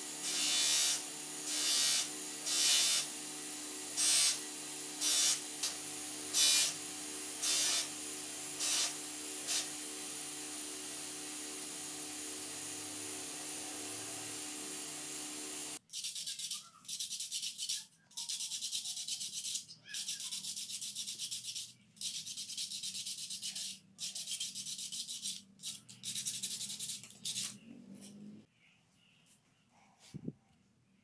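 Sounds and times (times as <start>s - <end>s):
buffing wheel humming: 0.0s - 15.8s
sandpaper scratching plastic: 15.9s - 27.6s.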